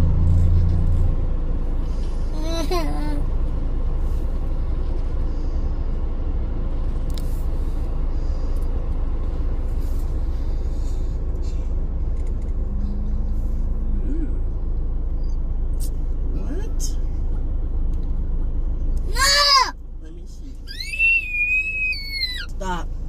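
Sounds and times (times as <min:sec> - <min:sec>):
car idling rumble: 0:00.0 - 0:23.0
passing traffic: 0:00.0 - 0:23.0.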